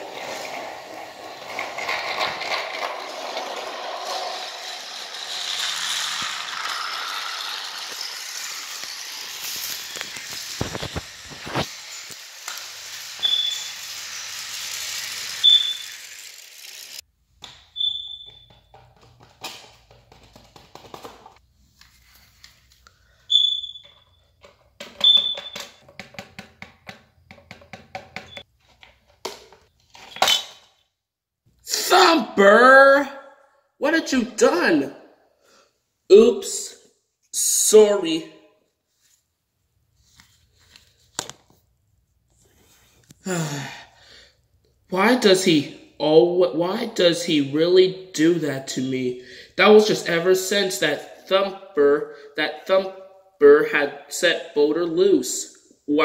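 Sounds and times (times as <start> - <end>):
toy train whirring and rattling: 0.0 - 17.1
short high squeaks: 13.2 - 14.0, 15.3 - 16.2, 17.8 - 18.6, 23.3 - 24.4, 25.0 - 25.8.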